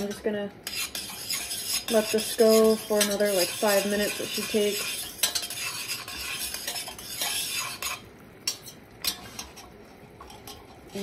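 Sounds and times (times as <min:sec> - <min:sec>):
metal spoon scraping saucepan: 0:00.0 - 0:11.0
spoon clinking against pot: 0:04.1 - 0:10.9.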